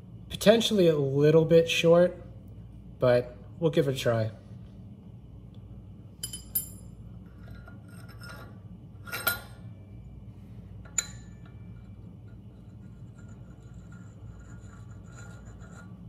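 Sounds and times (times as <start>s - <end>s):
metal rod and bolt clinking: 6.2s - 9.6s.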